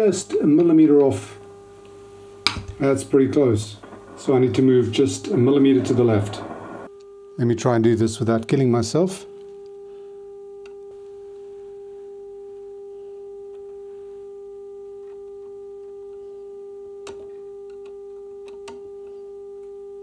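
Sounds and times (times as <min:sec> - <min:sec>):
radio test tone: 0:02.4 - 0:06.9.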